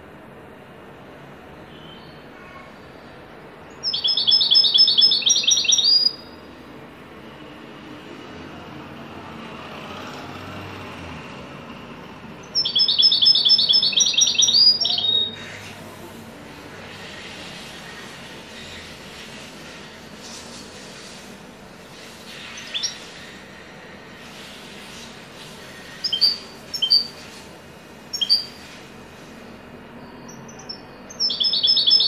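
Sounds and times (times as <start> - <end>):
goldfinch trilling song: 3.8 - 6.4, 12.4 - 15.4, 26.0 - 27.1, 28.1 - 28.6, 30.2 - 32.0.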